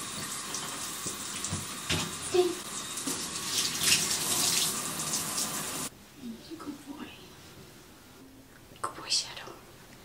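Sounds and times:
bath water running: 0:00.0 - 0:05.9.

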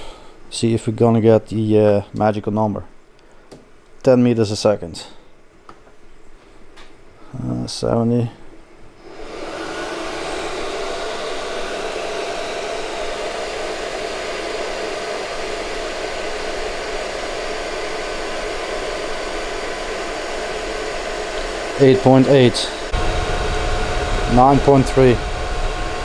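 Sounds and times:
faint fan whine: 0:00.0 - 0:26.0
blower fan rushing air: 0:08.9 - 0:26.0.

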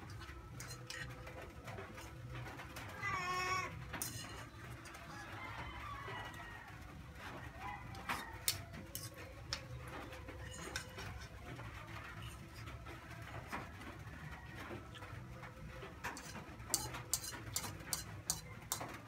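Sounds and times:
fork clinking against a bowl: 0:00.0 - 0:02.2, 0:04.0 - 0:05.2, 0:07.9 - 0:11.3, 0:16.1 - 0:19.0.

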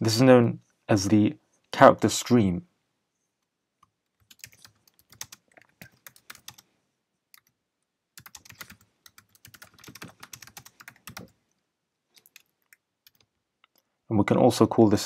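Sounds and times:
typing on a computer keyboard: 0:04.1 - 0:06.7, 0:08.2 - 0:11.4, 0:12.2 - 0:13.8.

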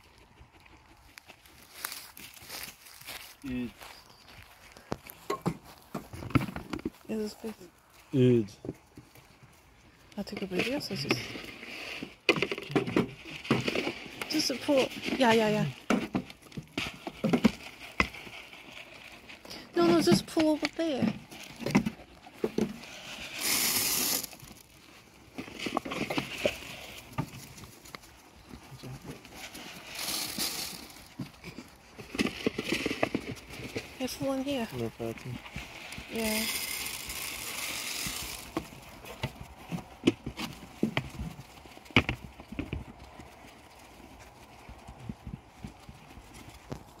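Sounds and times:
rustle: 0:00.0 - 0:47.0
sheep crunching feed: 0:00.0 - 0:47.0.

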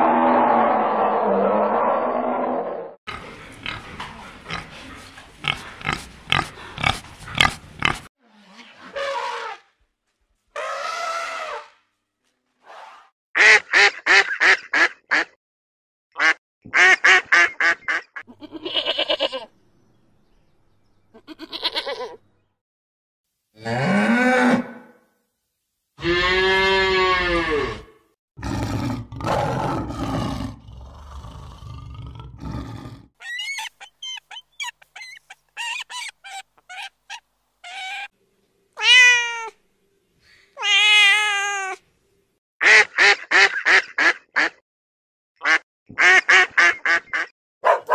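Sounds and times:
cat meowing: 0:38.8 - 0:39.6, 0:40.6 - 0:41.8.

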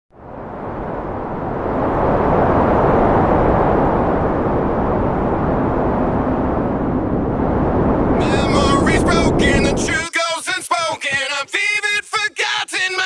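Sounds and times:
steady rushing roar: 0:00.1 - 0:10.1.

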